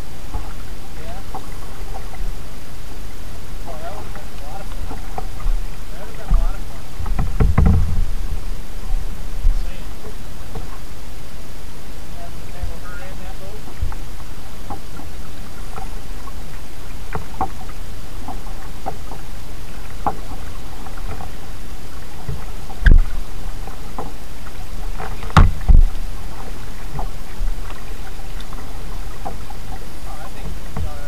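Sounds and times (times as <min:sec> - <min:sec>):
paddle knocking hull: 0:00.0 - 0:10.9, 0:12.2 - 0:31.0
paddle drips and splashes: 0:00.0 - 0:31.0
low rumble: 0:04.1 - 0:09.9.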